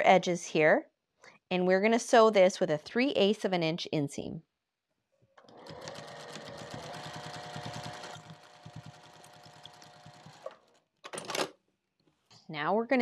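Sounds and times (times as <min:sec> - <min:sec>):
sewing machine stitching: 0:05.4 - 0:11.5.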